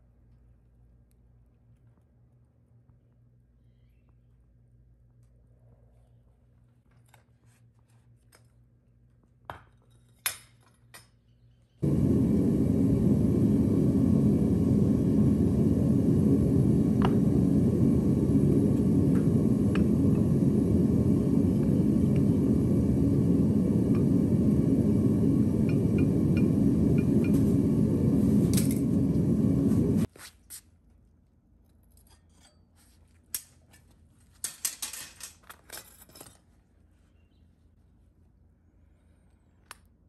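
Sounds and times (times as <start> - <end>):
gas furnace burner roaring: 11.8 - 30.1.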